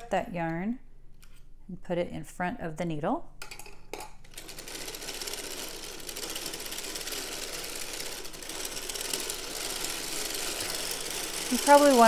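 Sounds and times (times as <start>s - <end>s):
sock machine needles clattering: 4.3s - 12.0s.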